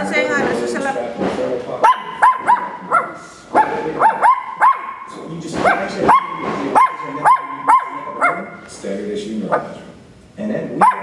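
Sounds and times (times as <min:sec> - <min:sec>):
puppy yipping and barking: 0:01.8 - 0:08.6.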